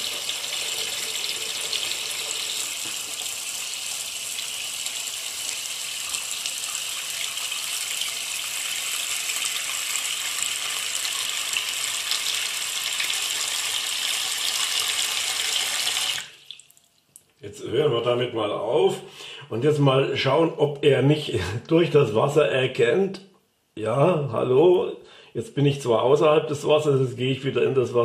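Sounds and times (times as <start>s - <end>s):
tap water running into basin: 0.0s - 17.0s.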